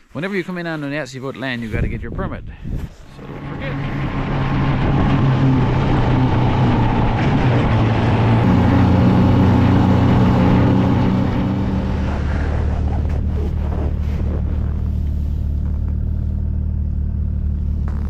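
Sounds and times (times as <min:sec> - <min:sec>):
wind noise: 0:01.6 - 0:16.2
snowmobile engine running: 0:03.0 - 0:18.0.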